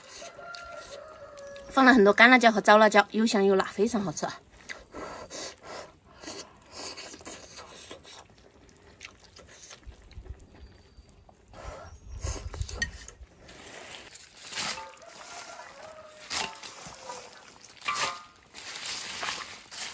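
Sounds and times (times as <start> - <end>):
person chewing: 4.6 - 11.5
leaves rustling: 13.4 - 19.9.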